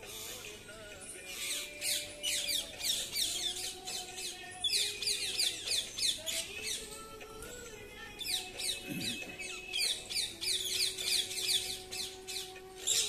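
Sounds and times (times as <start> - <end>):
parakeets screeching: 0.0 - 7.0, 8.2 - 13.0.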